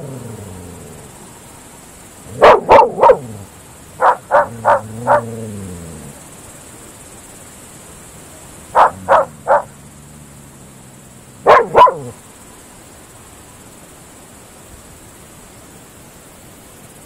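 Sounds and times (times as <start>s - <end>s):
steady high hiss: 0.0s - 17.0s
dogs barking: 2.3s - 5.6s, 8.7s - 9.8s, 11.4s - 12.2s.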